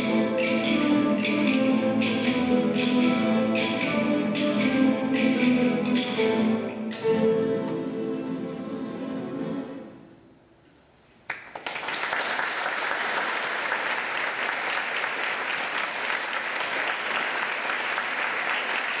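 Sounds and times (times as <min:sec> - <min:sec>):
audience applauding: 0:11.3 - 0:19.0.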